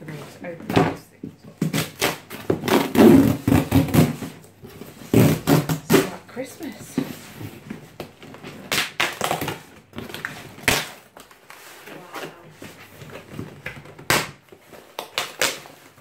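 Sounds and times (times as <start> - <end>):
packing tape ripping: 1.6 - 4.4, 5.0 - 6.2, 8.2 - 16.0.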